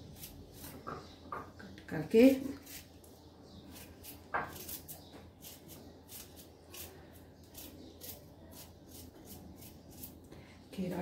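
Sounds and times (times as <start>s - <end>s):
knife slicing cucumber: 3.7s - 10.2s.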